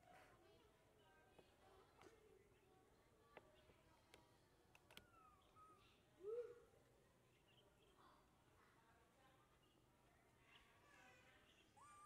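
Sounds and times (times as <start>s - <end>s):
faint clicks: 4.1s - 5.1s.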